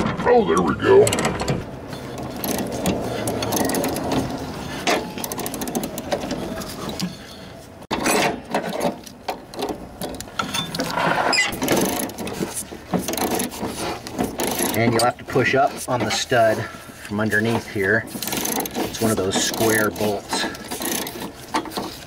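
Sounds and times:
ratchet wrench clicking: 18.2s - 21.3s.

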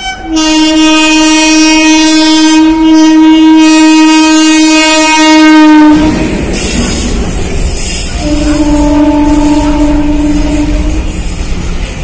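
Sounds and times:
locomotive horn blast: 0.0s - 6.2s, 8.2s - 11.2s
freight train rumbling and clattering: 0.0s - 12.0s.

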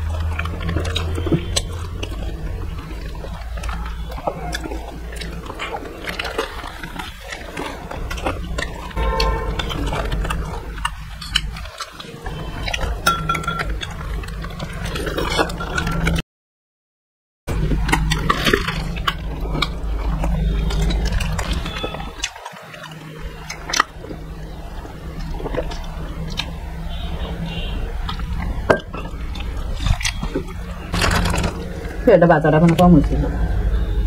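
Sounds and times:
person chewing: 0.0s - 16.2s, 17.5s - 32.0s
spoon clinking against dishes: 13.0s - 13.7s.

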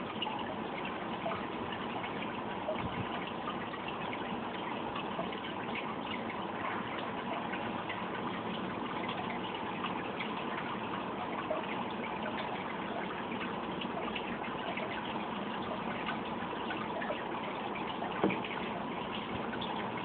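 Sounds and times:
aquarium water bubbling: 0.0s - 20.0s
faint hum: 0.0s - 20.0s.

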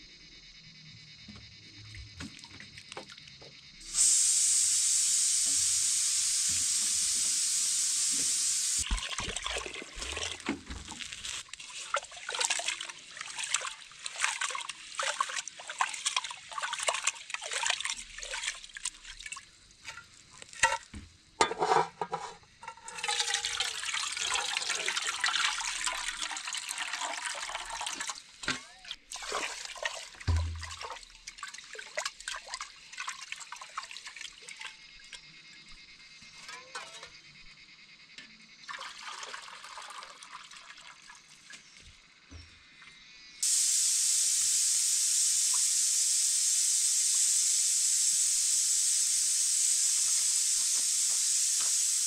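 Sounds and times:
water pouring: 8.2s - 20.8s, 22.8s - 34.8s, 38.7s - 41.6s
water splashing and sloshing: 8.8s - 21.0s, 22.8s - 35.2s.

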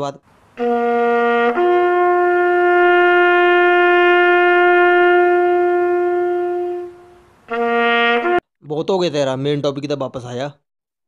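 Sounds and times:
horn sounding long note: 0.6s - 8.4s.

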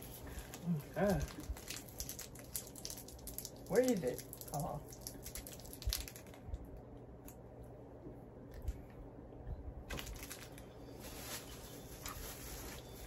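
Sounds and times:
plastic wrapper rustling: 0.0s - 6.6s, 9.9s - 13.0s.

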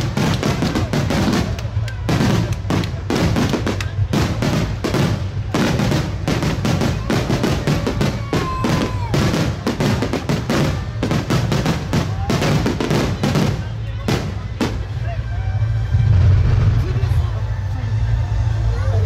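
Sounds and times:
fireworks bursting: 0.0s - 18.6s
low rumble: 14.1s - 19.0s.

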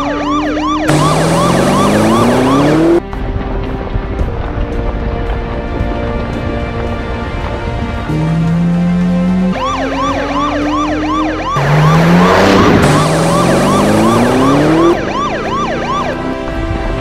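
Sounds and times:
police siren yelping: 0.0s - 3.0s, 9.5s - 16.3s
car engine revving past: 11.5s - 15.0s.

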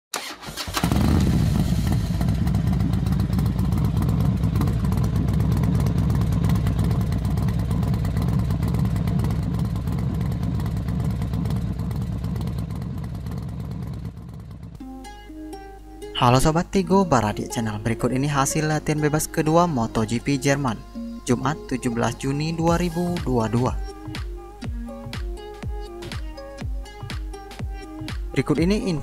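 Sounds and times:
motorcycle engine: 0.1s - 15.6s, 18.6s - 29.0s.

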